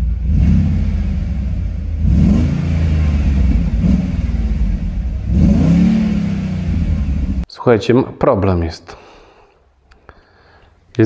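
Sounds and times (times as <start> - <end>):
car engine revving: 0.0 - 7.5.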